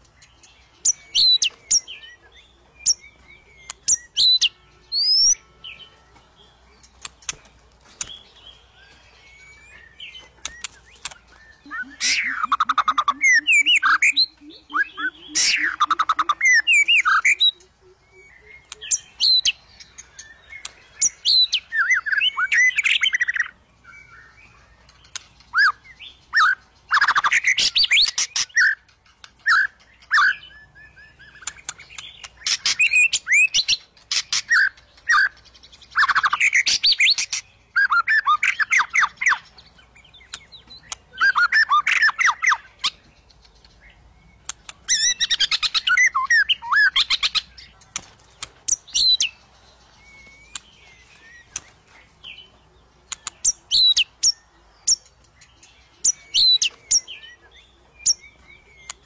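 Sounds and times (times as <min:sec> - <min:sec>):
bird singing varied whistles: 0:09.1 - 0:19.5, 0:44.3 - 0:47.5, 0:50.0 - 0:51.7.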